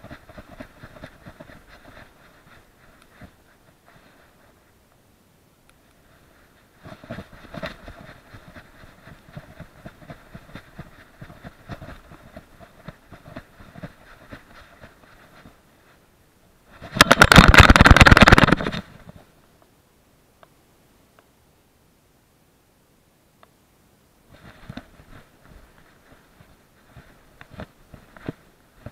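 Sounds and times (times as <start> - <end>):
camera rattling in mount: 16.8 - 18.9
fast rapid rattling: 16.8 - 18.9.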